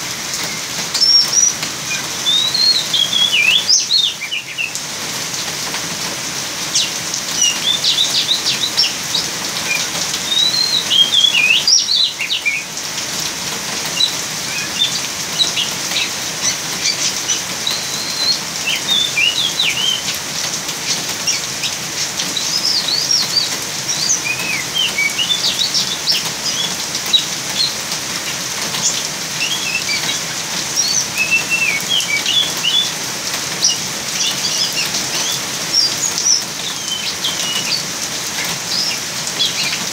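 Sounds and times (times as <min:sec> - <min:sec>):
rain hissing: 0:00.0 - 0:39.9
bird singing chirps and whistles: 0:00.5 - 0:04.8, 0:06.8 - 0:12.7, 0:14.0 - 0:20.2, 0:22.3 - 0:27.8, 0:28.8 - 0:30.2, 0:30.8 - 0:33.0, 0:33.6 - 0:37.9, 0:38.7 - 0:39.8.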